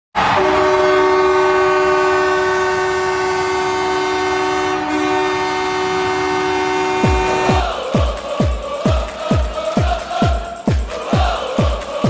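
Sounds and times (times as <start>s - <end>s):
goal horn blaring: 0.2s - 7.7s.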